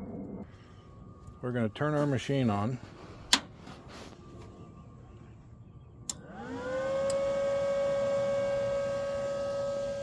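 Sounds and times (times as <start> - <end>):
cooling fan whine: 0.0 - 10.0
welder switch click: 6.0 - 6.3.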